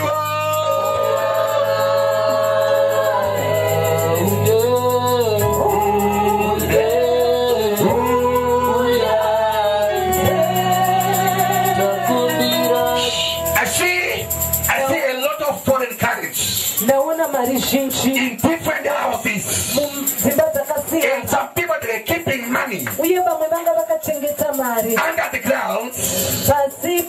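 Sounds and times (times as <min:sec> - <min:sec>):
gospel singing: 0:00.0 - 0:27.0
instrumental backing chords: 0:03.5 - 0:15.0
steady ticking beat: 0:10.4 - 0:19.1.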